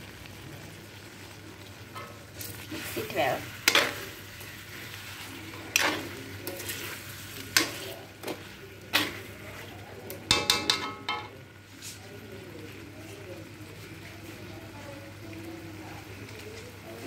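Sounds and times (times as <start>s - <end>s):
soft sizzle of cooking: 0.0s - 17.0s
metal spoon scraping a wok: 2.4s - 9.3s.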